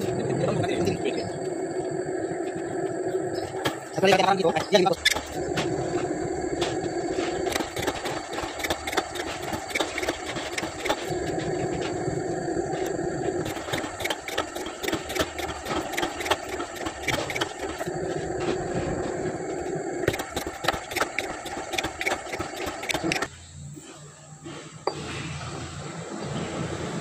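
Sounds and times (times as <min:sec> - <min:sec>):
machine hum: 0:00.0 - 0:27.0
cutter stroke clatter: 0:07.2 - 0:11.3, 0:12.8 - 0:17.9, 0:20.0 - 0:23.3.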